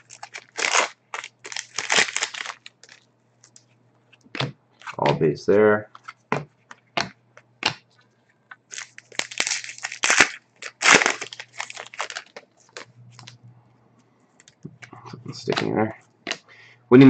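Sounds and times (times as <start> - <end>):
foil wrapper tearing and crinkling: 0.0 - 3.0, 8.7 - 13.3.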